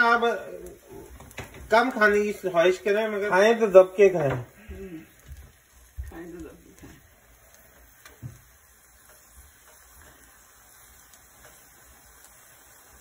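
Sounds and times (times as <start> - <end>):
ghee sizzling on hot griddle: 0.0 - 13.0
steel spoon ticks: 8.9 - 10.4, 11.0 - 12.4.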